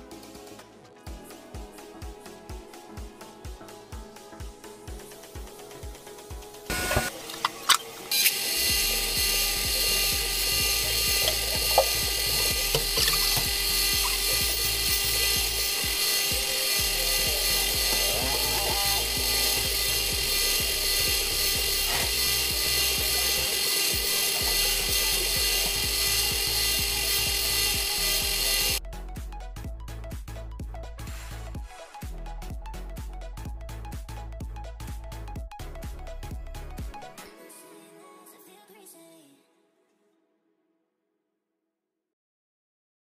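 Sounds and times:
bench grinder grinding steel blade: 6.7 - 28.8
steady hum: 6.7 - 28.8.

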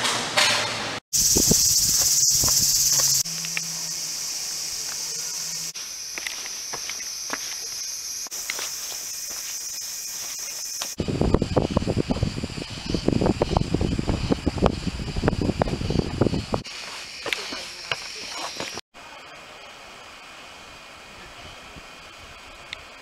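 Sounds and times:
cicadas chorus: 1.1 - 23.0
faint footsteps on path: 1.2 - 3.6, 4.7 - 11.0, 15.6 - 18.8.

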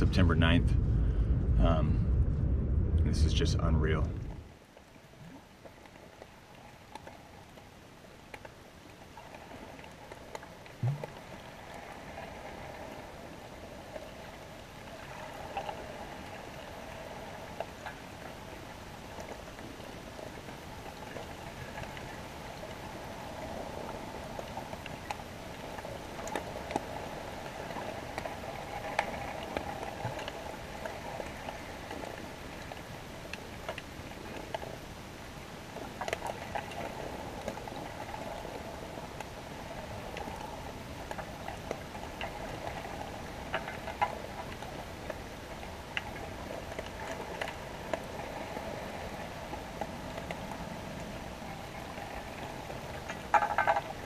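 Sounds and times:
brief low hum: 0.0 - 4.5
underwater crackling fizz: 0.0 - 54.0.

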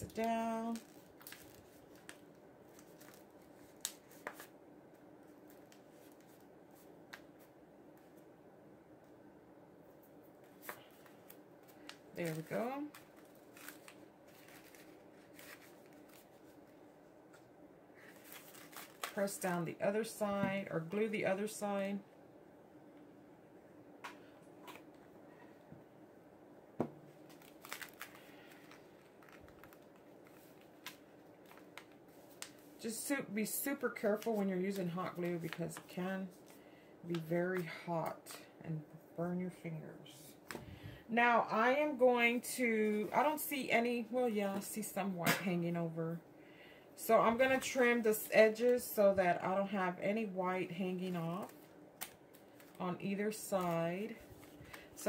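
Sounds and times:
paper crinkling and tapping: 0.0 - 4.5, 10.4 - 16.6, 26.8 - 32.7, 34.0 - 37.3.

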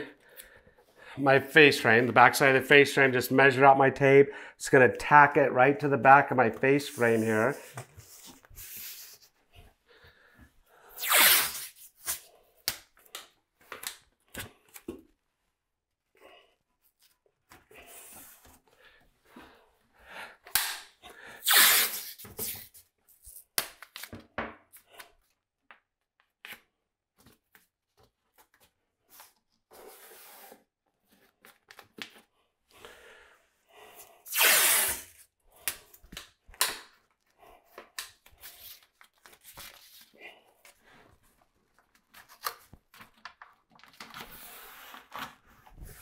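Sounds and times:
tape ripping off roll: 11.0 - 12.2, 21.4 - 22.7, 34.3 - 35.2.

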